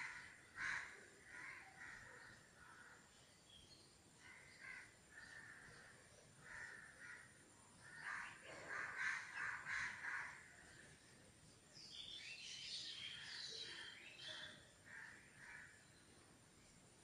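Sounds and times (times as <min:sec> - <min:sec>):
crows cawing: 0:00.0 - 0:02.9, 0:04.2 - 0:10.5, 0:14.9 - 0:15.8.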